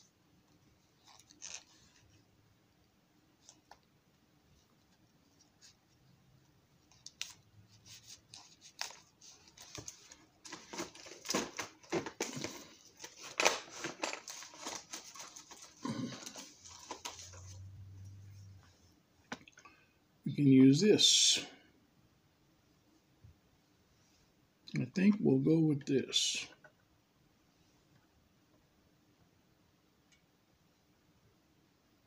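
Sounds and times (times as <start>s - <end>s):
small parts rustling and clicking: 8.2s - 17.6s.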